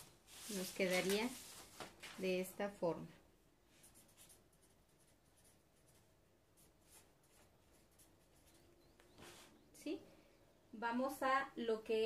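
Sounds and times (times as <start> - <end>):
marker scratching on paper: 3.7 - 9.6.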